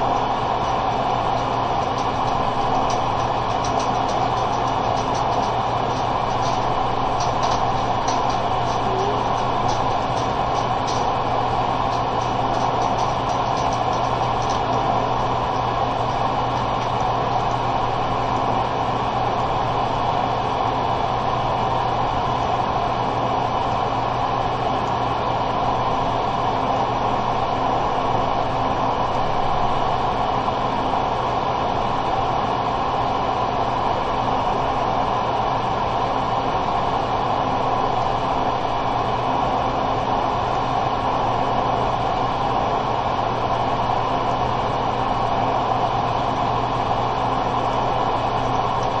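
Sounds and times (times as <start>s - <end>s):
steady hiss and hum: 0.0s - 49.0s.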